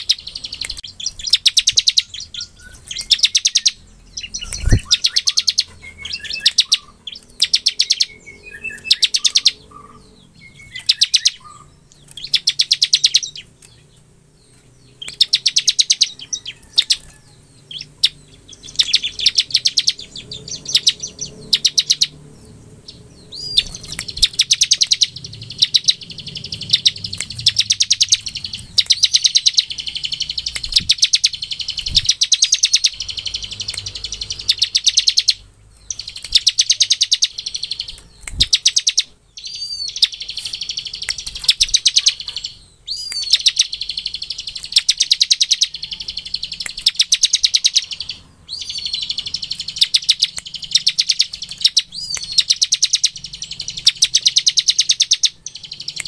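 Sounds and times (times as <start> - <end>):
bird rattling trill: 0.0 - 10.0, 23.3 - 48.0.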